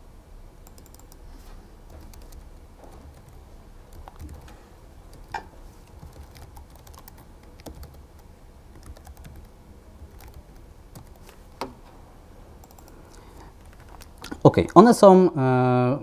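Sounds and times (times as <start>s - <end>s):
laptop keyboard typing: 0.6s - 1.2s, 1.9s - 11.8s, 12.6s - 14.8s.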